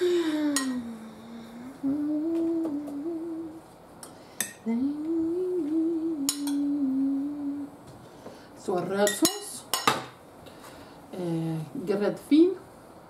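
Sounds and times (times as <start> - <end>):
person humming: 0.0 - 3.7, 4.6 - 7.8.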